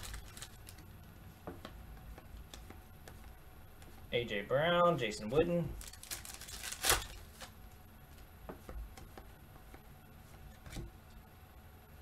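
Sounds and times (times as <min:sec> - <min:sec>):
foil wrapper crinkling: 0:00.0 - 0:00.9, 0:05.8 - 0:07.6.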